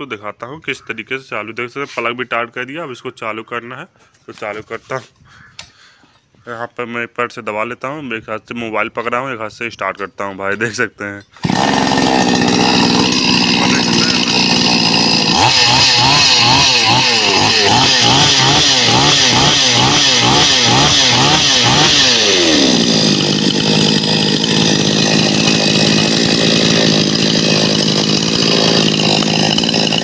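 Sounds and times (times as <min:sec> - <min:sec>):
chainsaw engine revving and idling: 0:11.4 - 0:30.0.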